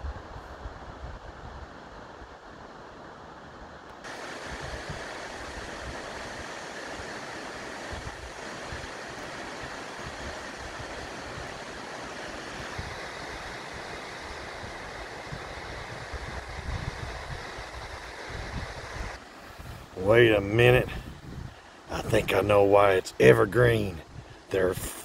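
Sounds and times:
waterfall rushing: 4.0 - 20.9
wind buffeting microphone: 4.1 - 22.6.

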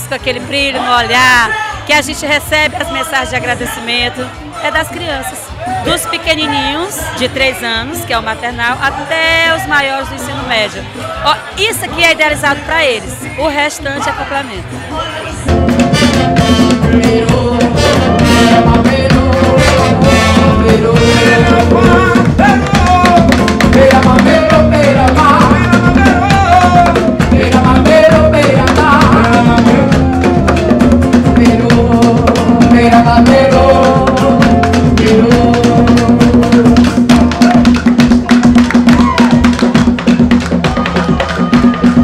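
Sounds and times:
hand drums and percussion: 0.0 - 42.0
person singing: 15.0 - 38.0.

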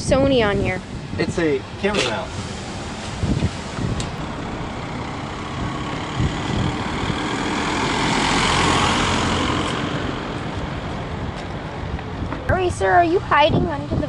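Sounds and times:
wind rumble on microphone: 0.0 - 14.0
car driving past: 2.0 - 12.0.

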